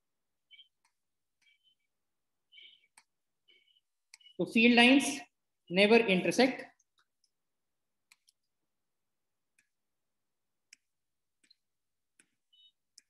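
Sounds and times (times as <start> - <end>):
computer mouse clicks: 2.8 - 3.2, 4.1 - 4.4, 8.0 - 8.6, 9.5 - 9.8, 10.6 - 13.0.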